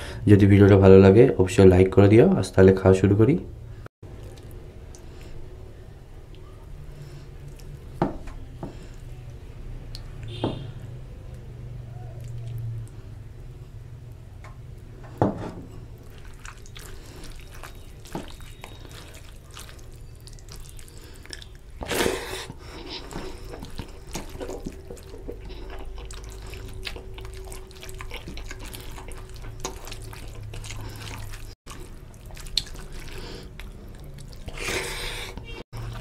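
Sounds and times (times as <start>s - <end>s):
hand squishing wet rice: 15.9s - 34.9s.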